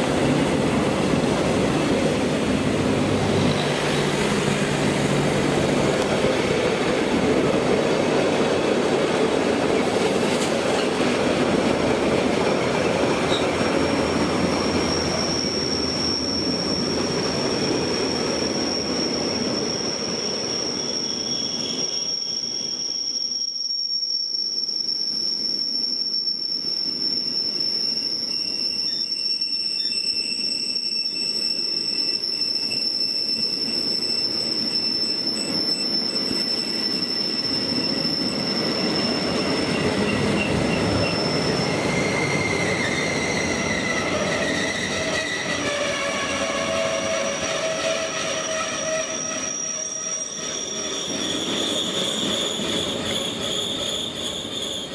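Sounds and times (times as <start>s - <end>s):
high-pitched wheel squeal: 12.6s - 54.9s
train wheels rumbling: 30.6s - 54.9s.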